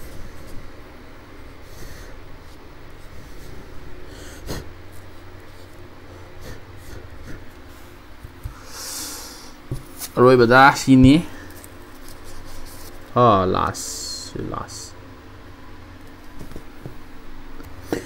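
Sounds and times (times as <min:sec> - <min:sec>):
low steady hum: 0:00.0 - 0:18.0
short breath: 0:08.5 - 0:09.6.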